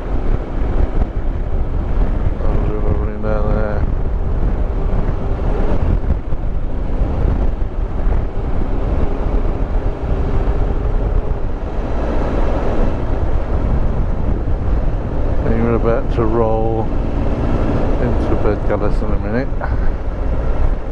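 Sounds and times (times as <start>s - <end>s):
wind noise on microphone: 0.0s - 20.9s.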